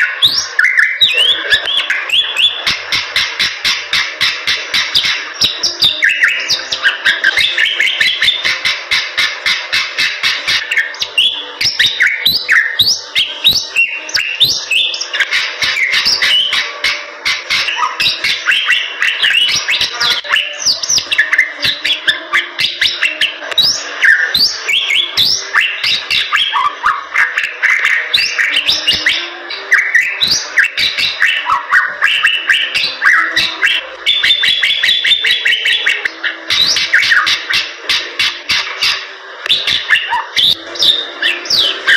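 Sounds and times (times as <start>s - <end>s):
bird singing chirps and whistles: 0.0s - 41.9s.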